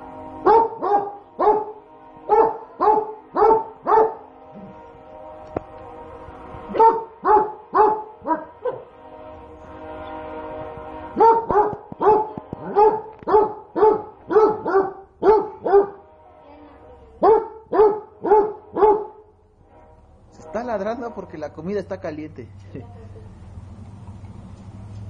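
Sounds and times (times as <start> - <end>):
dog barking: 0.4 - 4.3, 6.7 - 8.9, 11.2 - 16.0, 17.2 - 19.2.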